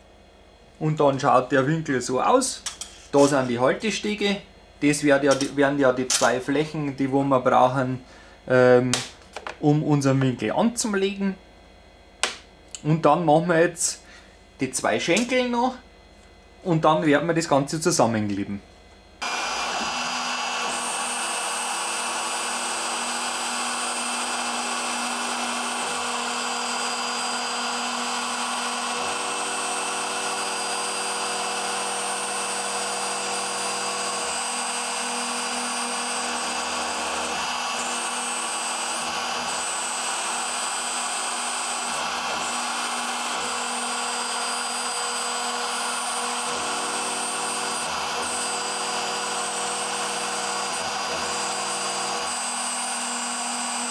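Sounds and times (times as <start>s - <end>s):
axis drive motor hum: 18.8s - 53.9s.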